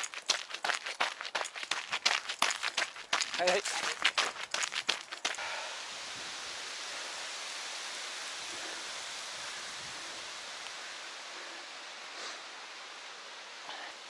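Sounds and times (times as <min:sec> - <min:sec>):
running footsteps on a path: 0:00.0 - 0:05.8
steady hiss: 0:05.0 - 0:14.0.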